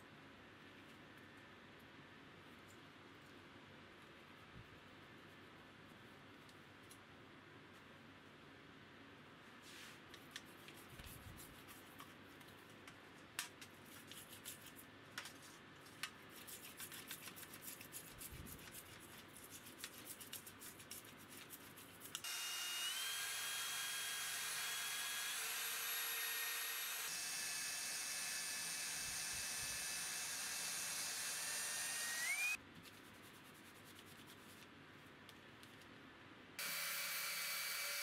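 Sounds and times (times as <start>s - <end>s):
toothbrush scrubbing metal plate: 16.2s - 22.2s
cordless drill polishing whine: 22.2s - 32.6s, 36.6s - 38.0s.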